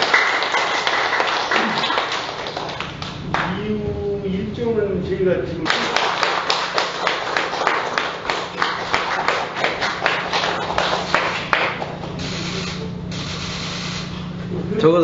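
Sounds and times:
people clapping: 0:00.0 - 0:03.7, 0:05.6 - 0:12.2
steady low hum: 0:00.0 - 0:15.0.

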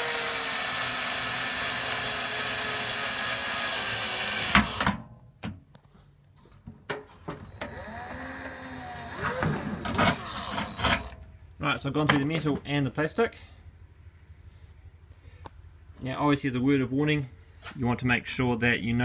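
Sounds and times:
power drill boring: 0:00.0 - 0:04.9, 0:07.5 - 0:11.2.

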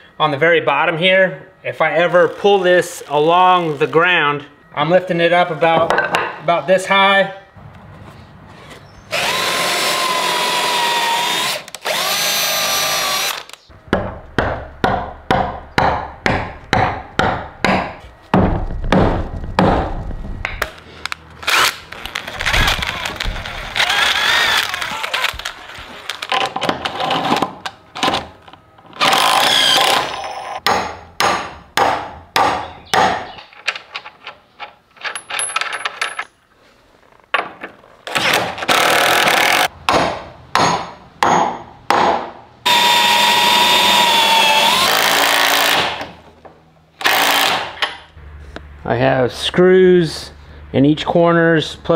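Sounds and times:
drill boring through wood: 0:09.1 - 0:13.6, 0:21.5 - 0:26.2, 0:29.0 - 0:30.3, 0:38.7 - 0:39.7, 0:42.7 - 0:46.0, 0:47.0 - 0:47.7
sharp knocks: 0:13.9 - 0:20.7.

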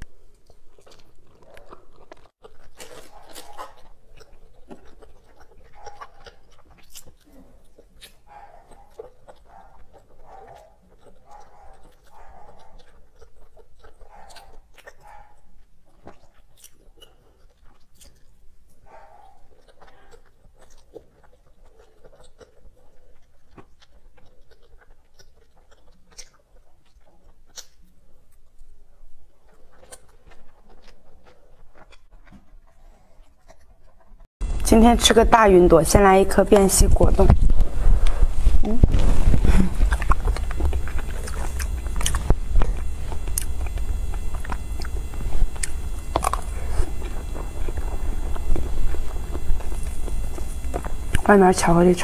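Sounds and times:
person chewing chocolate: 0:00.0 - 0:34.7, 0:36.4 - 0:52.0
steady low hum: 0:34.4 - 0:52.0.

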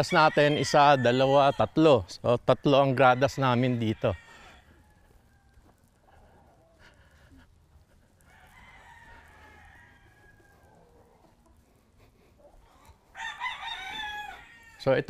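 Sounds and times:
rooster crowing: 0:00.0 - 0:02.0, 0:02.7 - 0:05.8, 0:08.2 - 0:11.3, 0:12.7 - 0:15.0.

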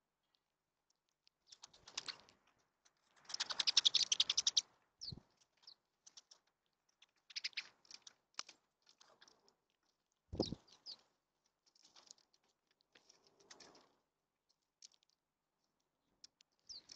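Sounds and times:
birds clicking and fluttering: 0:01.5 - 0:09.6, 0:10.4 - 0:14.0
short bird chirps: 0:10.3 - 0:11.0.

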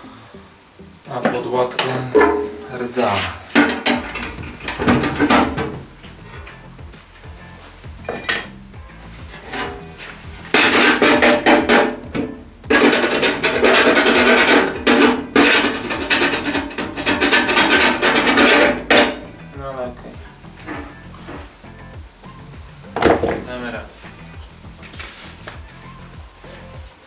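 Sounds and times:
scraping rust off sheet steel: 0:02.2 - 0:06.6, 0:09.2 - 0:19.4.

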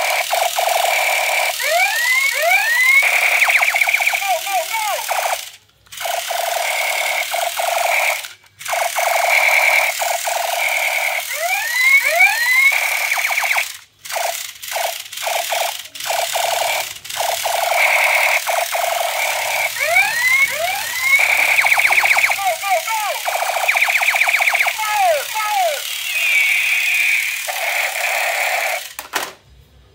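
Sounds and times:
toy gun buzzing rattle: 0:00.0 - 0:29.3
rising zapping chirps: 0:25.8 - 0:27.5.

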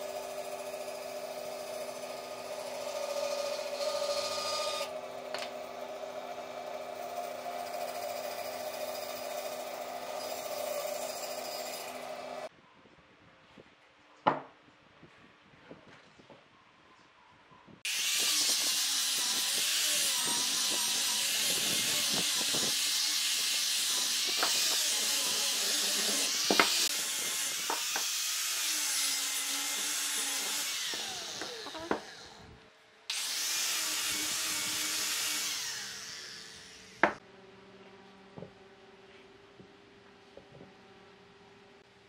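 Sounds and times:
angle grinder sanding wood: 0:00.0 - 0:12.5, 0:17.9 - 0:32.4, 0:33.1 - 0:37.2.

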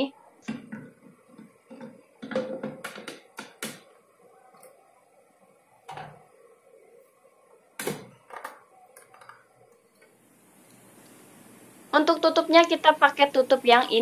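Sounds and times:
plastic jar knocks and clunks: 0:00.5 - 0:03.9.

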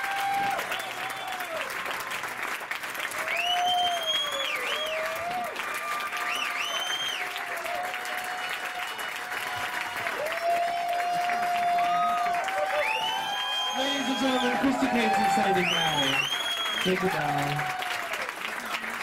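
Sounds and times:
audience applauding: 0:00.0 - 0:19.0
whistles: 0:00.4 - 0:01.5, 0:03.2 - 0:05.2, 0:06.2 - 0:07.4, 0:11.9 - 0:17.5.

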